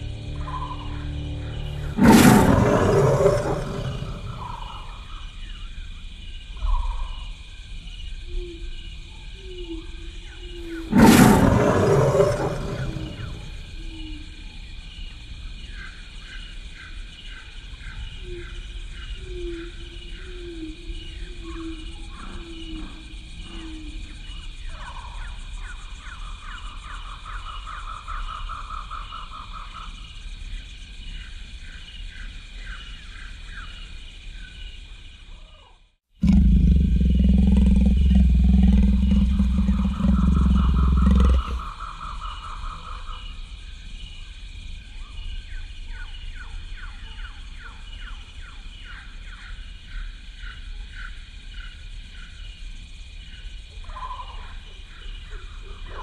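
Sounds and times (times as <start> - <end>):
dog growling in play: 36.2 - 41.7.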